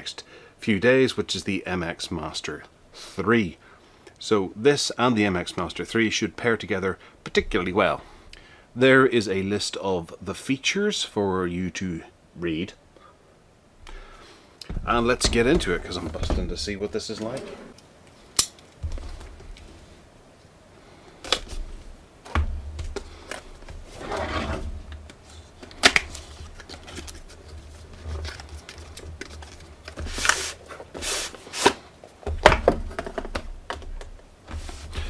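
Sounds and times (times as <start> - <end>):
cardboard sliding swishes: 22.9 - 25.5, 34.5 - 35.0.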